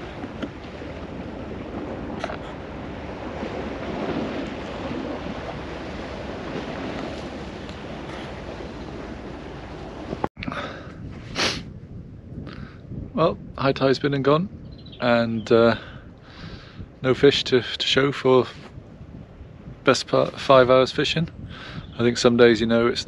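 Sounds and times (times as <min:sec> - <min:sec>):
waves washing against rocks: 0:00.0 - 0:10.3
wind rumbling on microphone: 0:00.0 - 0:23.0.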